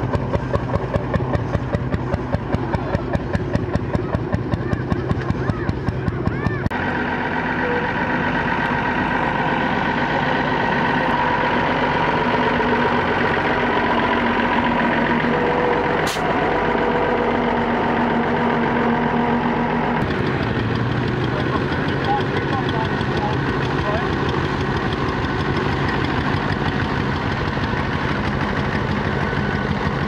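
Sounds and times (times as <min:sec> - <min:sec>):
diesel engine driving past: 0:00.0 - 0:30.0
vintage tractor engine: 0:00.0 - 0:30.0
short click: 0:16.1 - 0:16.3.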